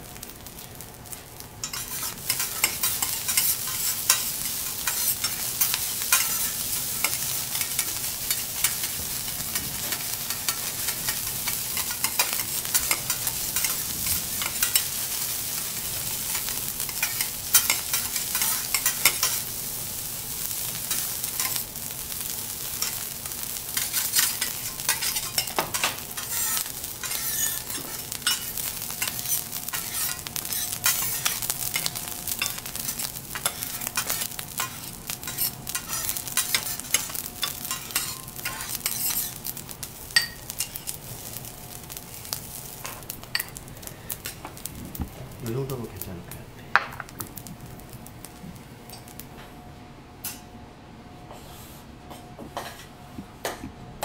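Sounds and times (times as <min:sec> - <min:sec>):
rice sizzling on a griddle: 0:00.0 - 0:49.3, 0:51.3 - 0:51.9
metal spatulas scraping and tapping: 0:01.6 - 0:09.0, 0:23.8 - 0:32.6, 0:33.4 - 0:39.4.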